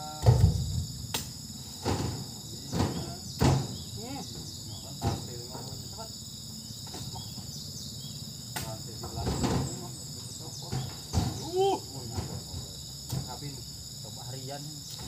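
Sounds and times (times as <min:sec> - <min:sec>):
insects droning: 0:00.0 - 0:15.0
fruit bunches thudding into truck bed: 0:00.1 - 0:04.0, 0:04.7 - 0:05.5, 0:08.6 - 0:13.6.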